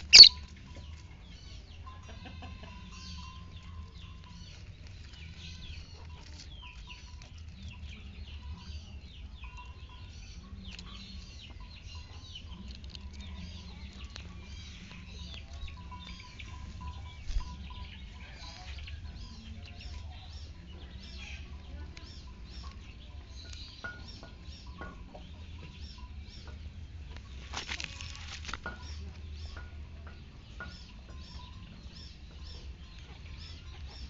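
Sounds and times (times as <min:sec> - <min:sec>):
small birds chirping: 0:00.0 - 0:34.0
steady low rumble: 0:02.8 - 0:23.6.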